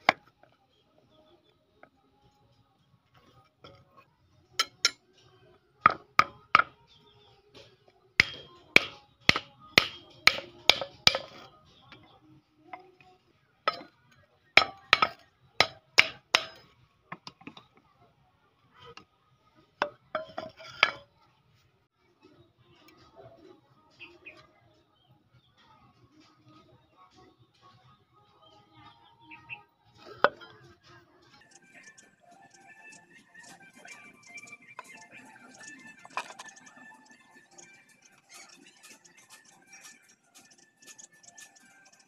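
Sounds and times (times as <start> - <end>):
metallic clinks on anvil: 4.6 - 5.0.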